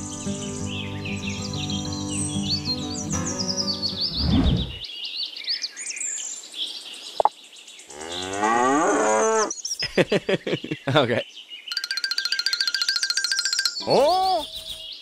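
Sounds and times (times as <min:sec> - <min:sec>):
birds chirping: 0:00.0 - 0:15.0
cow mooing: 0:08.0 - 0:09.5.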